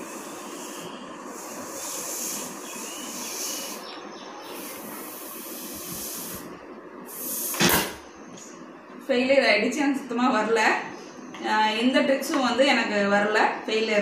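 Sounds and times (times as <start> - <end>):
air hissing out of balloon: 0.0 - 8.3.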